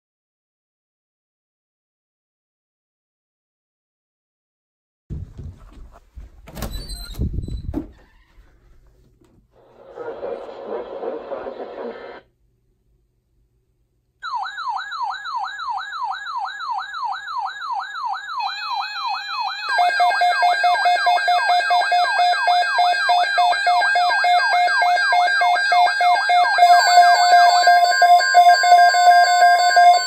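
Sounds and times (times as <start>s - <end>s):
alarm beeping tones: 14.2s - 30.0s
falling siren-like alarm sweep: 14.2s - 30.0s.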